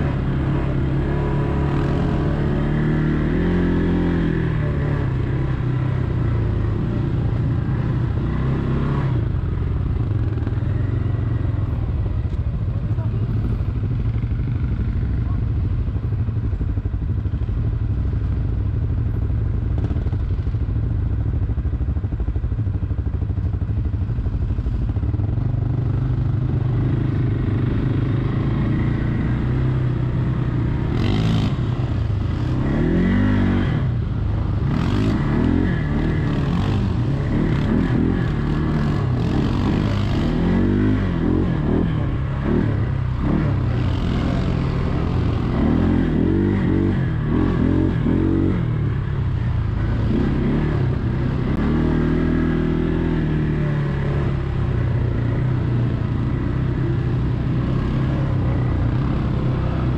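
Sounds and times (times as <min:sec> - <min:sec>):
quad bike engine revving: 0:00.0 - 0:12.0, 0:25.0 - 0:59.9.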